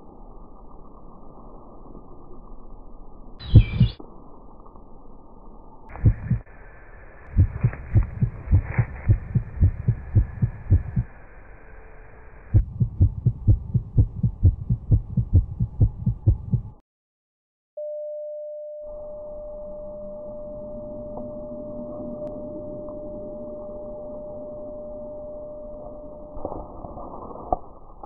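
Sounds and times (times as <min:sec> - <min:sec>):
dull low thumps: 0:03.4 - 0:03.9, 0:05.9 - 0:06.4, 0:07.3 - 0:11.1, 0:12.5 - 0:16.8
steady tone: 0:03.4 - 0:16.8.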